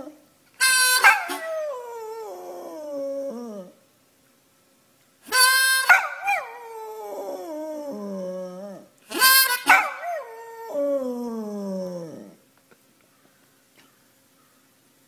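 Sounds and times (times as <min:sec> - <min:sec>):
dog howling: 0:01.0 - 0:03.8, 0:05.8 - 0:12.4.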